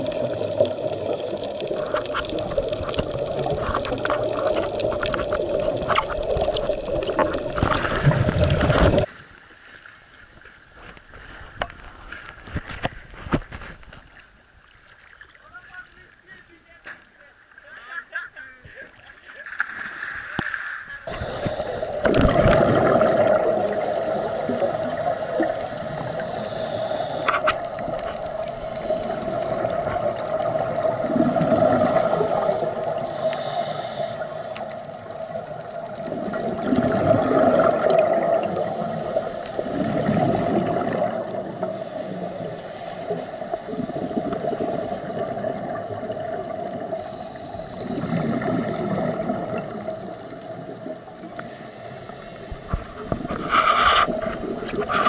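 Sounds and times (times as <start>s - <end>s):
regulator bubbles underwater: 0.0s - 9.1s, 21.0s - 55.0s
muffled underwater hum: 49.0s - 55.0s.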